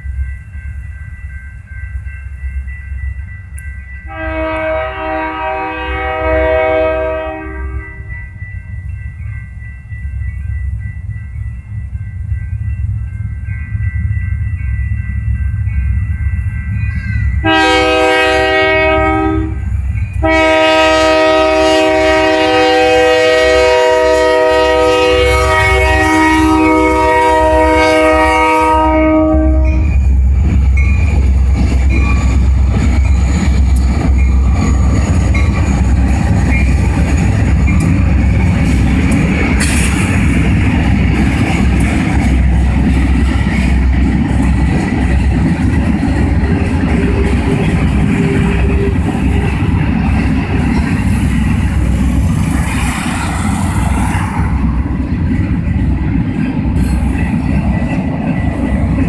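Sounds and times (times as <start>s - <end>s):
train rumbling past: 0.0s - 59.0s
locomotive horn blasts: 4.1s - 8.1s, 17.4s - 29.9s.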